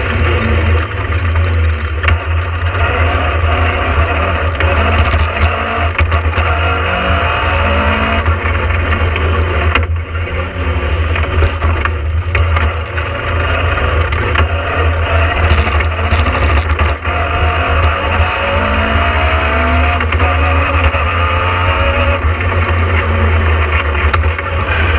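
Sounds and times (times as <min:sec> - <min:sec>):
rally car engine revving: 0:00.0 - 0:24.9.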